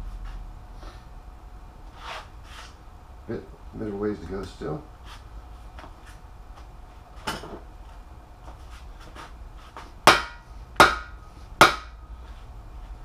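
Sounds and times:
mallet striking steel bar: 10.1s - 12.0s.

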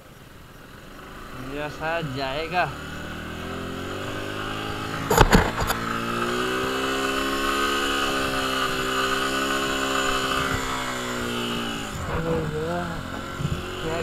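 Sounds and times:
motorcycle engine revving: 0.1s - 14.0s
sharp knocks: 5.0s - 5.9s.

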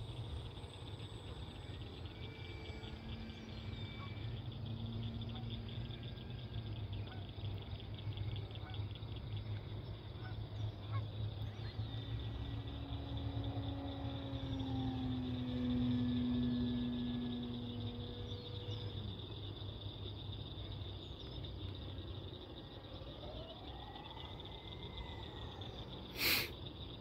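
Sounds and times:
insects chirping: 0.0s - 27.0s
low steady hum: 0.0s - 27.0s
short tonal calls: 23.7s - 26.5s.

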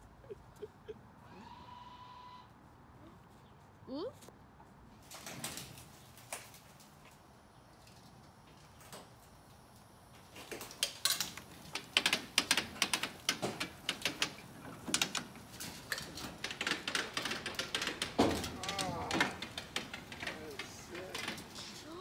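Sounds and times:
car rolling down metal ramp clattering: 11.6s - 22.0s.

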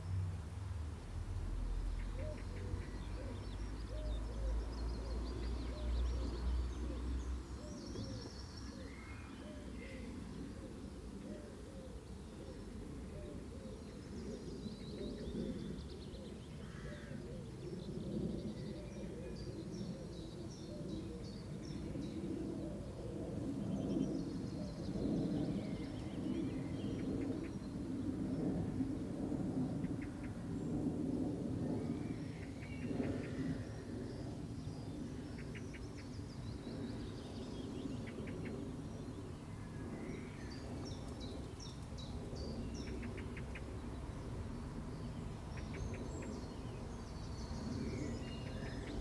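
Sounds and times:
small birds chirping: 1.5s - 29.0s, 31.7s - 49.0s
low cooing: 8.0s - 14.5s.

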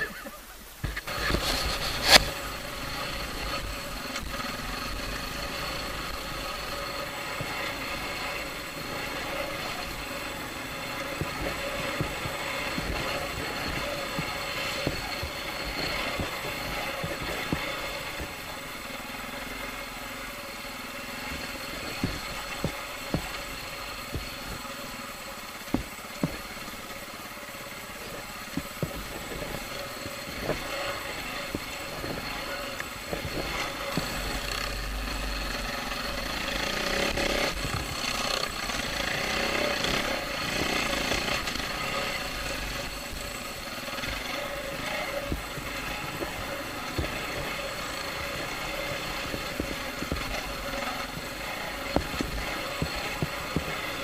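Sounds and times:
dirt bike engine running: 0.0s - 54.0s
sharp knocks: 3.1s - 19.8s, 20.8s - 27.0s.

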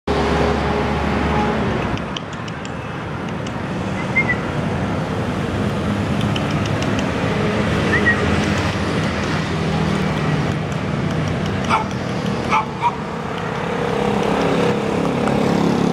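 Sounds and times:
street traffic: 0.1s - 15.9s
vehicle engine: 0.1s - 15.9s
high whistled chirps: 4.0s - 4.5s.

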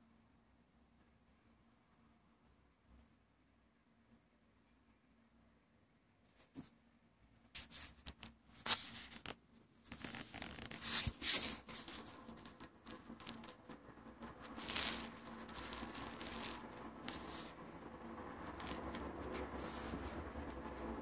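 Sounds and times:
rustling and scraping on carpet: 7.6s - 17.6s, 18.4s - 21.0s.

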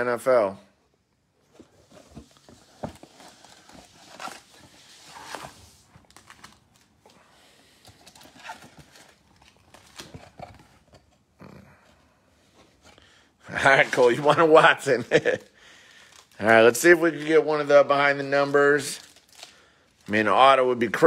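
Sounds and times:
card pack wrappers rustling: 2.2s - 10.7s, 13.9s - 20.5s.

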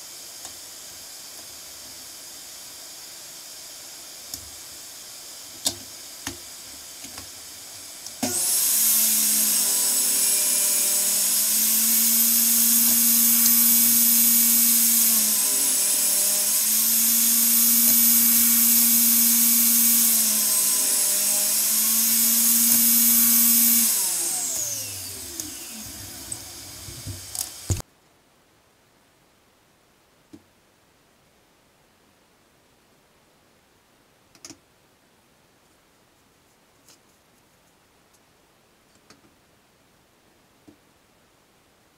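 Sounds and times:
table saw whining: 7.9s - 27.8s.

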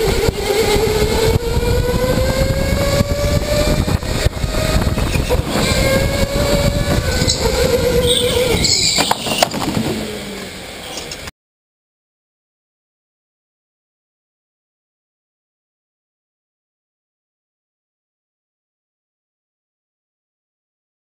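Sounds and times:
electric go-kart motor whining: 0.0s - 11.3s.

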